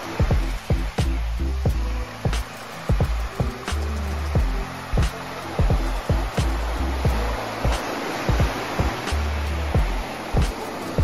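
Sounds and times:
even hiss: 0.0 - 11.0
drum hits: 2.3 - 3.6, 4.4 - 9.0.

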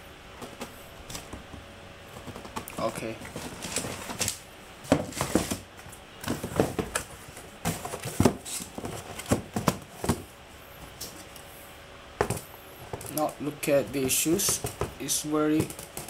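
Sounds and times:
cardboard box rustling: 2.2 - 10.3.

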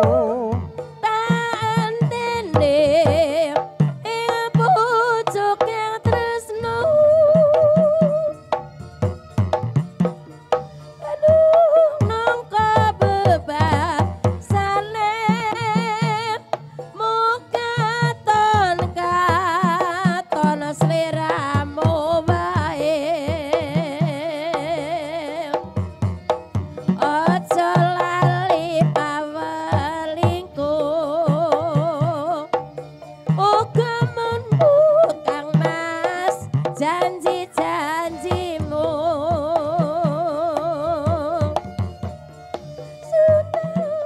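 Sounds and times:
person singing with vibrato: 0.0 - 8.7
hand drum strokes: 0.0 - 44.0.

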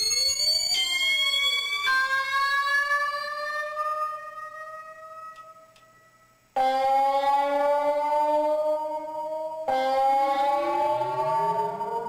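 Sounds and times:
synthesizer notes gliding upward: 6.6 - 12.0.

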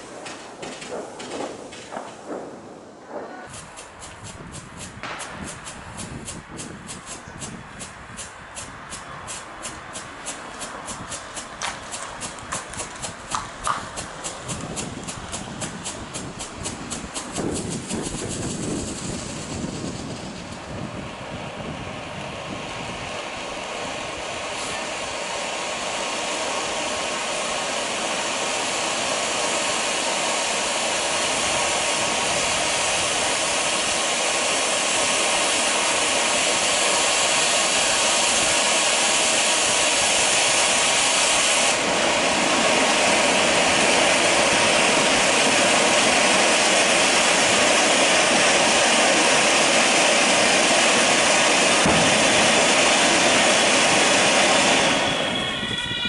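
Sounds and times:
firework crackle: 0.0 - 56.0
firework fountain hissing: 0.0 - 56.0.

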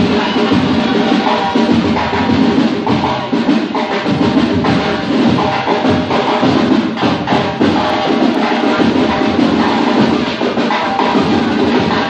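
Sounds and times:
loud drum and percussion music: 0.0 - 12.0.

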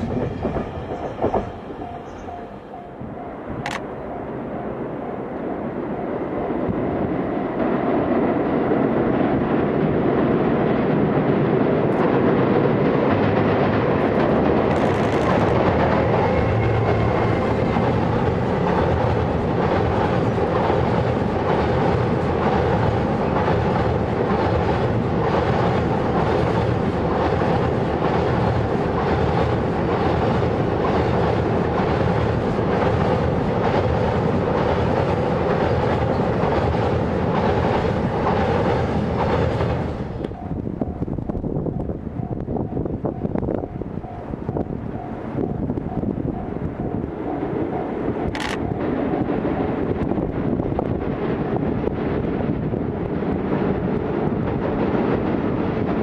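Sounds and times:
train wheels clattering over rail joints: 0.0 - 2.4, 13.1 - 40.4
heavy train rumble: 0.0 - 56.0.

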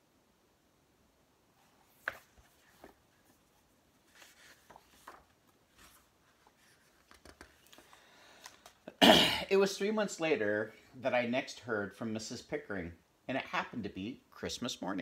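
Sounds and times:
book pages turning: 1.6 - 8.8
paper rustling: 1.6 - 8.8.

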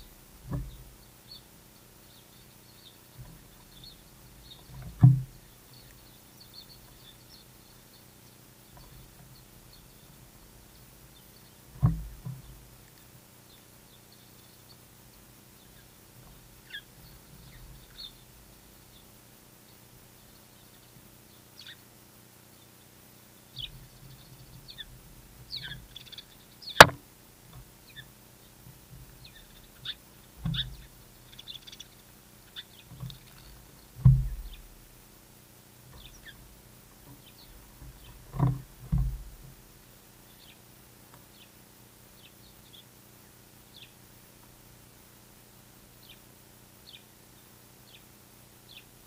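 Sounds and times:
small birds chirping: 0.0 - 49.0.

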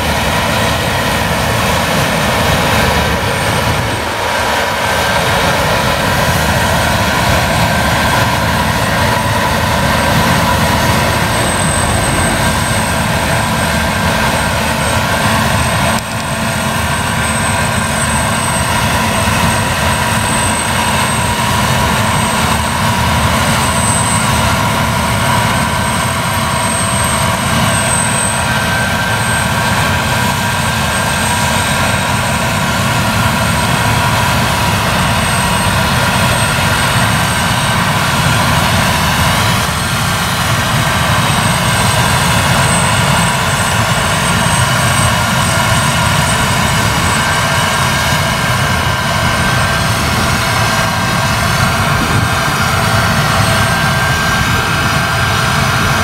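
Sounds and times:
combine harvester threshing: 0.0 - 22.1
high whines from drives: 0.0 - 56.0.

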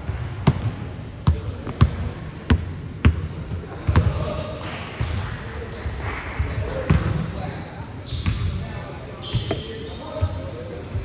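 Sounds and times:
basketball bouncing on court floor: 0.1 - 4.3, 6.9 - 7.2.

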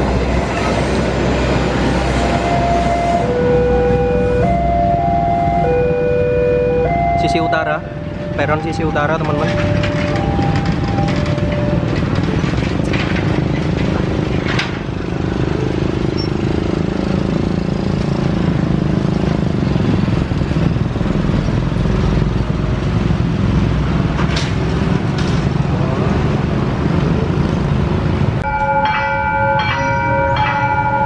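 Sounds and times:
motorcycle engines running: 7.9 - 28.4.

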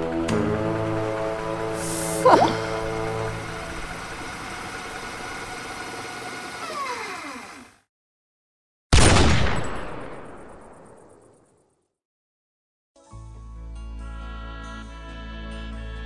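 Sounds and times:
film score tones sliding down: 1.6 - 7.8.

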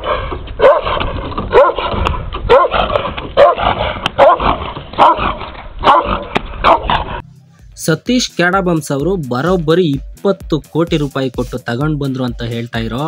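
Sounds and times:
dog barking: 0.0 - 7.2.

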